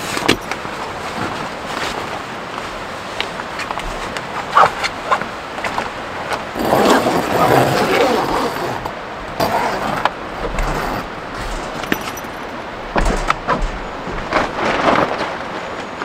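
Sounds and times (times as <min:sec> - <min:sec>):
strong wind gusting: 0:00.0 - 0:16.0
tent fabric flapping: 0:00.0 - 0:16.0
wind buffeting microphone: 0:00.0 - 0:16.0.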